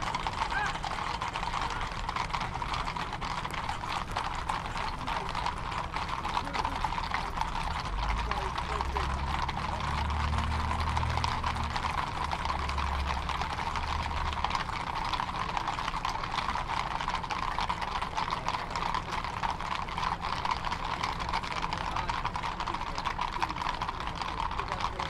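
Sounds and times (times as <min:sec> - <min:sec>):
horse hooves on asphalt: 0:00.0 - 0:25.0.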